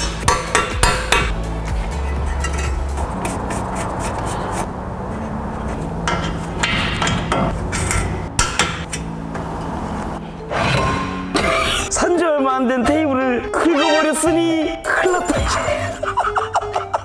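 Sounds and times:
metal scraping: 0:01.3 - 0:09.7.

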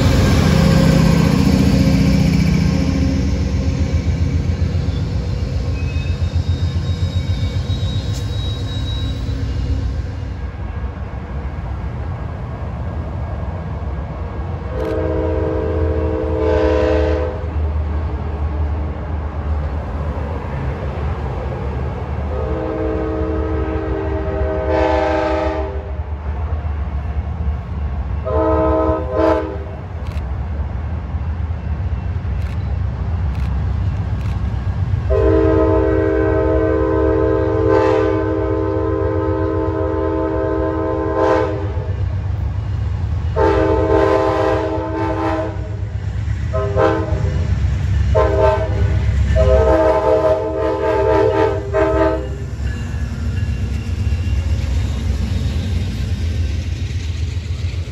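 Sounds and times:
locomotive air horn blasts: 0:14.7 - 0:17.5, 0:22.3 - 0:25.9, 0:28.2 - 0:29.7, 0:35.1 - 0:41.9, 0:43.4 - 0:45.8, 0:46.5 - 0:47.4, 0:48.1 - 0:52.4.

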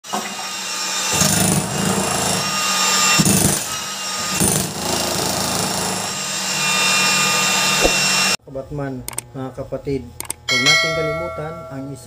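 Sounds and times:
power tool running: 0:00.1 - 0:08.4.

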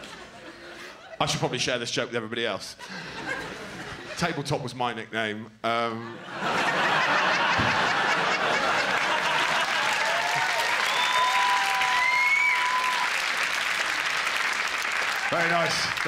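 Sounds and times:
audience applauding: 0:06.9 - 0:16.0
whoops: 0:09.6 - 0:13.4.

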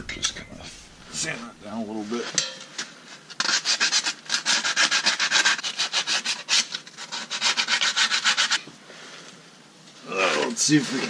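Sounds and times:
sandpaper rubbing on metal: 0:03.3 - 0:08.6.

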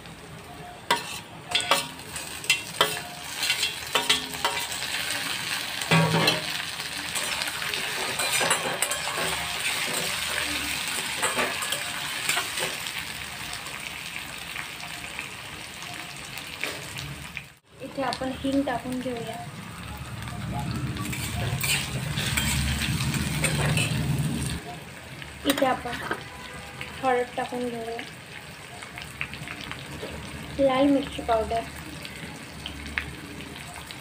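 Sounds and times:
tomatoes sizzling in oil: 0:00.0 - 0:34.0
metal spatula scraping pan: 0:00.9 - 0:12.9, 0:21.0 - 0:24.6, 0:25.5 - 0:26.4.

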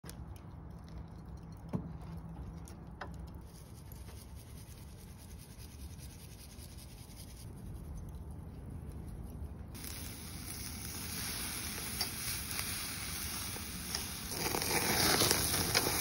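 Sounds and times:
faint low hum: 0:00.1 - 0:11.0.

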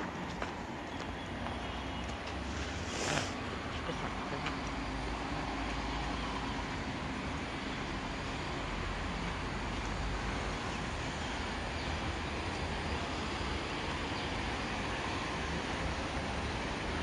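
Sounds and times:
even hiss: 0:02.6 - 0:03.4.

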